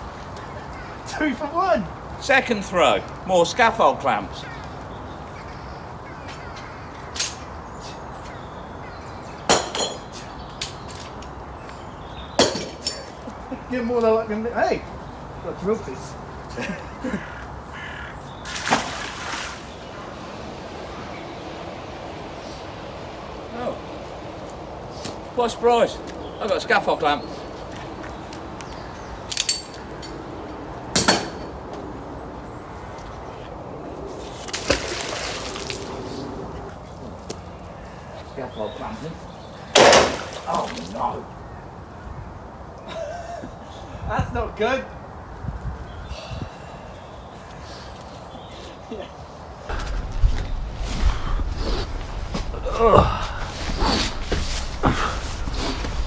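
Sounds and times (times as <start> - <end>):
magnet splashing into water: 18.4 - 19.7, 34.4 - 35.9.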